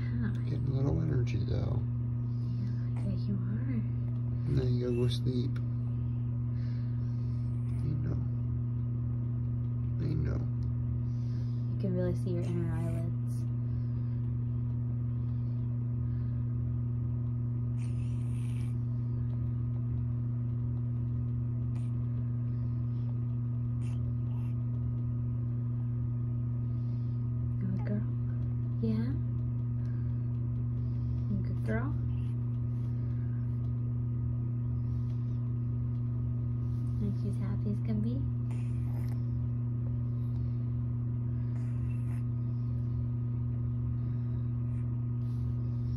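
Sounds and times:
steady low hum: 0:00.0 - 0:45.9
kitten congested breathing: 0:04.2 - 0:08.4, 0:29.4 - 0:33.8.

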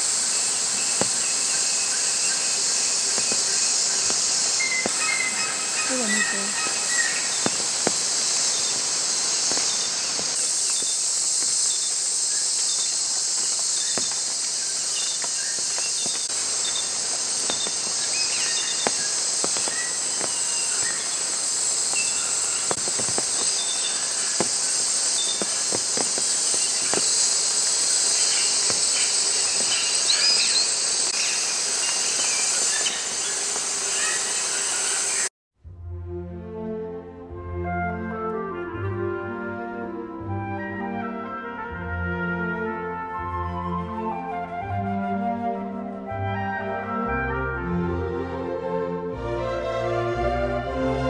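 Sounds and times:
high-pitched insect chorus: 0:00.0 - 0:35.3.

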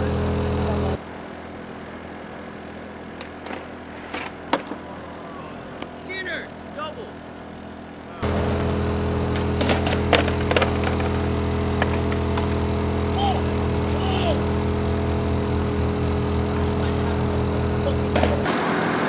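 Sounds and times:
air conditioner unit humming: 0:00.0 - 0:19.0
skateboard clacking on concrete steps: 0:03.2 - 0:04.9, 0:09.3 - 0:12.6.

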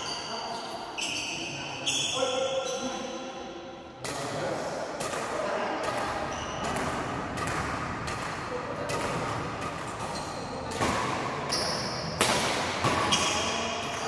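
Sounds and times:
shoe soles squeaking on court: 0:00.0 - 0:03.2, 0:06.3 - 0:06.9, 0:11.5 - 0:12.2
rackets hitting shuttlecock: 0:04.9 - 0:14.0.

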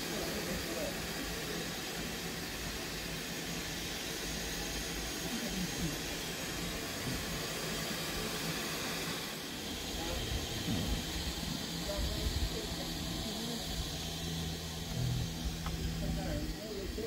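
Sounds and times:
steam hissing from locomotive: 0:00.0 - 0:17.0.

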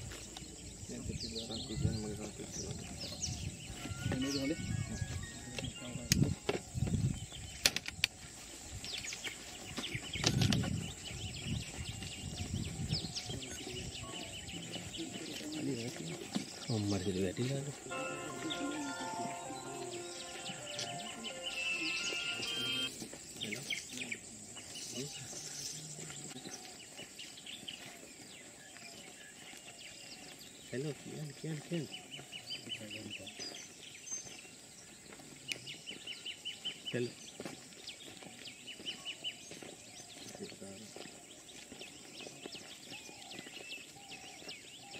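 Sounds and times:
small birds chirping: 0:00.0 - 0:44.9.

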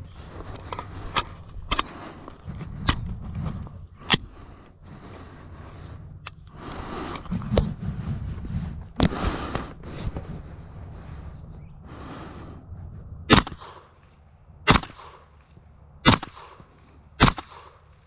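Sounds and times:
suppressed gunshots: 0:13.3 - 0:14.0, 0:14.6 - 0:18.0.

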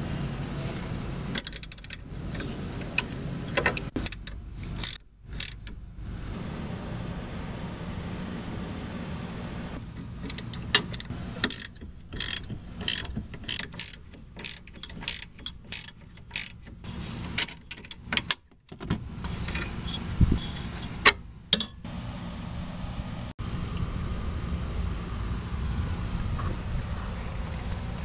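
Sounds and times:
ratchet wrench clicking: 0:01.4 - 0:02.0, 0:04.0 - 0:05.7, 0:10.2 - 0:16.8.

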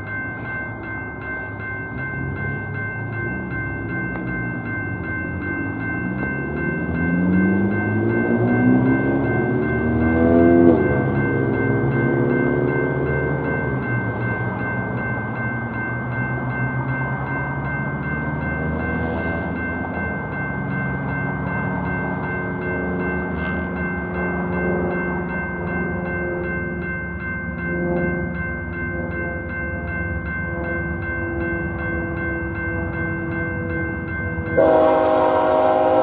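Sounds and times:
electronic crossing bell ringing: 0:00.0 - 0:36.0
engine passing by: 0:05.4 - 0:25.4.

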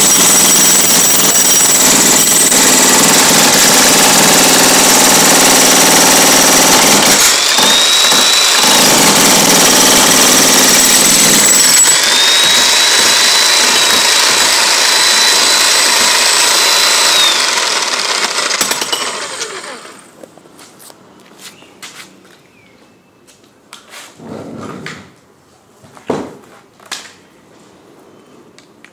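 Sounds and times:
demolition hammer pounding concrete: 0:00.0 - 0:19.7.

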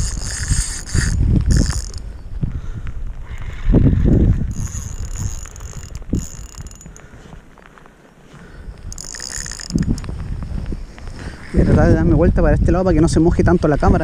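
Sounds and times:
fishing reel clicking and whirring: 0:00.0 - 0:02.1, 0:04.5 - 0:07.1, 0:08.9 - 0:10.1
wind buffeting microphone: 0:00.0 - 0:07.6, 0:08.3 - 0:14.0.

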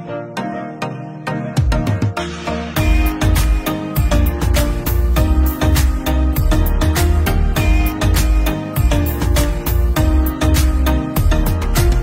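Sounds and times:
deep bass line: 0:02.4 - 0:12.0.

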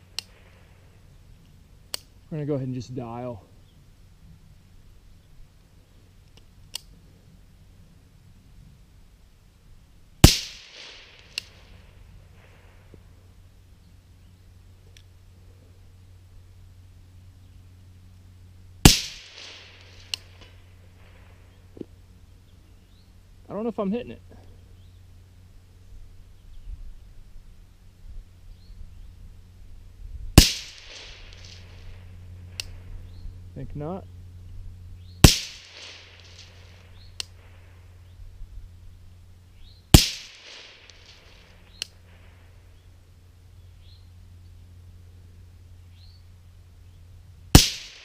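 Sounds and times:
faint sharp tick: 0:06.2 - 0:07.0, 0:37.2 - 0:37.4, 0:41.7 - 0:42.0
suppressed rifle shot: 0:10.2 - 0:13.0, 0:18.8 - 0:21.3, 0:30.4 - 0:32.8, 0:35.2 - 0:37.8, 0:39.9 - 0:42.4, 0:47.5 - 0:48.0.

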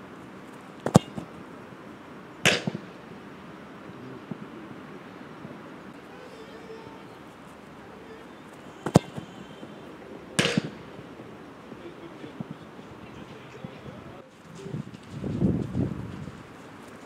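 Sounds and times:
ball hitting goal: 0:00.8 - 0:01.4, 0:02.4 - 0:03.0, 0:08.7 - 0:09.4, 0:10.4 - 0:10.9
boot striking football: 0:00.8 - 0:01.4, 0:08.8 - 0:09.3, 0:10.4 - 0:10.8.

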